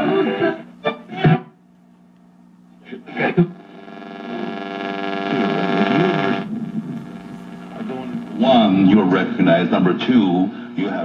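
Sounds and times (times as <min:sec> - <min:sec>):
radio buzzing hum with warbling tones: 0:02.4 - 0:10.1
radio broadcast snatch: 0:03.0 - 0:08.8.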